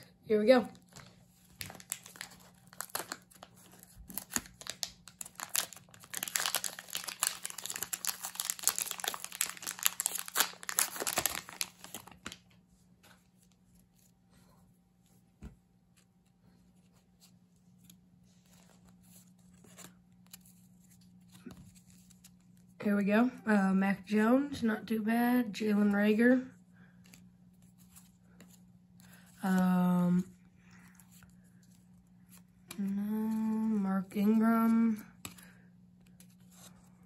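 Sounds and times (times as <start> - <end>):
plastic wrapper crinkling and tearing: 0.7 - 12.6
cards clicking and rustling: 0.8 - 12.5.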